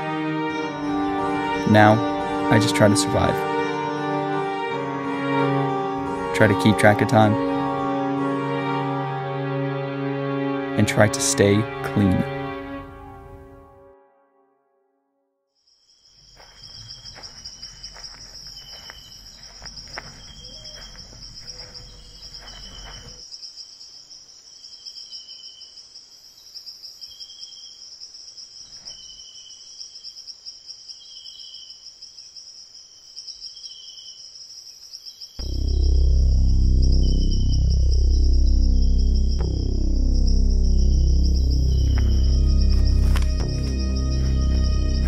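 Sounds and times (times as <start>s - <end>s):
cricket chirps: 15.6s - 45.0s
insects trilling: 15.7s - 45.0s
low rumble: 35.4s - 45.0s.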